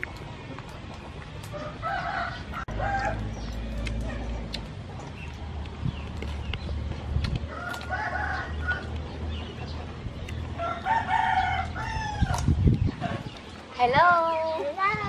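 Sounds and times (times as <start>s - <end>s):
rooster crowing: 1.6s - 3.4s, 7.5s - 8.9s, 10.6s - 12.4s.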